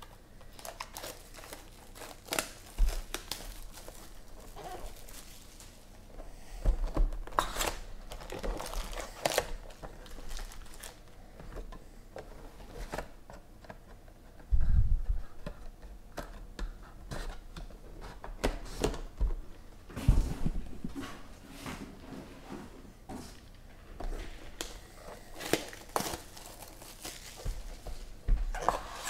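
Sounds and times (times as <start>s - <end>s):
foil packs crinkling: 0.0s - 6.0s, 7.1s - 11.2s, 24.5s - 28.8s.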